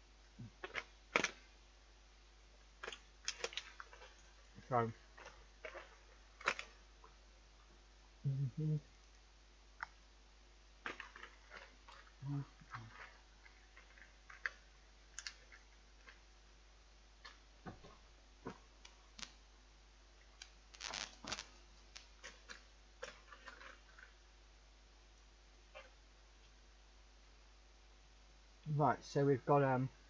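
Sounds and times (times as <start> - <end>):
brief low vocal sound: 8.2 - 8.8
plastic tray crackling: 20.4 - 24.1.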